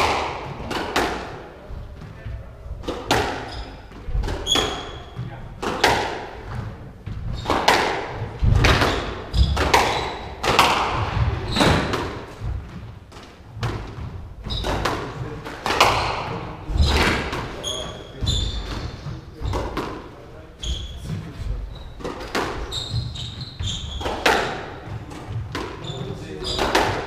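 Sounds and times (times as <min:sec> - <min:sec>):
squash ball cracking off rackets: 0:00.0 - 0:01.4, 0:05.6 - 0:06.4, 0:07.4 - 0:12.3, 0:14.6 - 0:17.5, 0:22.0 - 0:22.6, 0:23.9 - 0:25.8, 0:26.5 - 0:27.0
shoes squeaking on wooden floor: 0:01.5 - 0:27.0.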